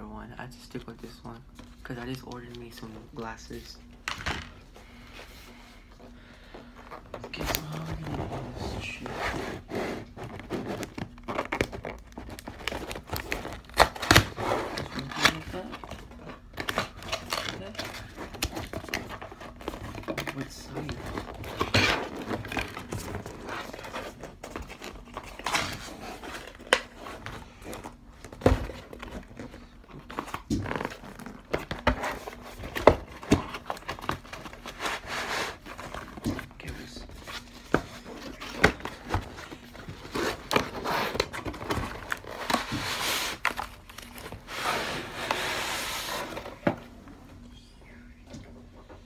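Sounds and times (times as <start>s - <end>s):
cardboard rubbing and scraping: 7.3s - 15.8s, 30.0s - 36.0s, 37.3s - 46.7s.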